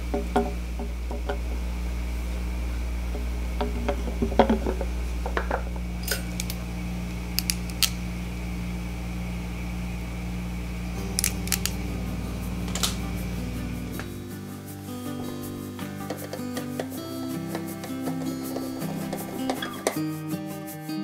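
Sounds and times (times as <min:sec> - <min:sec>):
low hum: 0:00.0 - 0:19.8
wire pliers clicking and snipping: 0:06.0 - 0:06.6, 0:07.4 - 0:08.0, 0:11.1 - 0:11.8.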